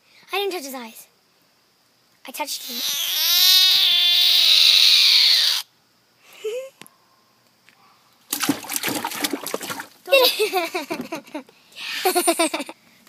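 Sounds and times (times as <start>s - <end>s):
frog distress scream: 2.5s - 5.7s.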